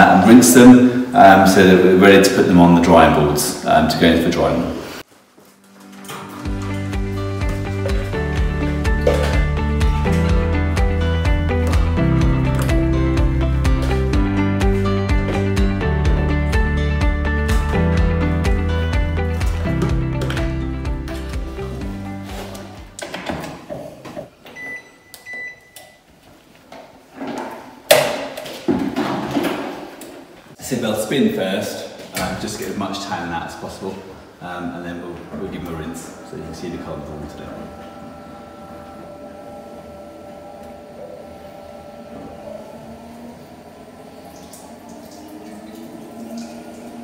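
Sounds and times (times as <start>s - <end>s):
washing machine motor hum: 6.2s - 23.0s, 34.3s - 47.0s
long electronic beeps: 36.1s - 43.1s.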